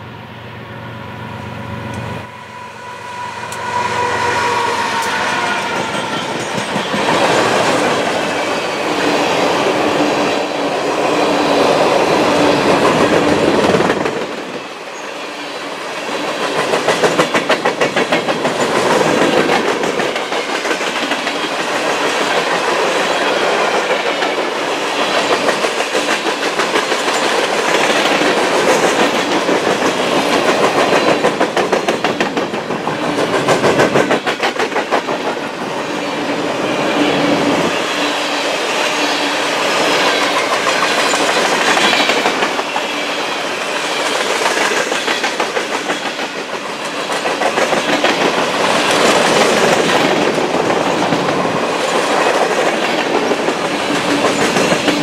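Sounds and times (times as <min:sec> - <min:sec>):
train rolling rumble: 0:00.0 - 0:14.8, 0:16.2 - 0:35.8, 0:40.0 - 0:55.0
train wheels clattering over joints: 0:44.0 - 0:55.0.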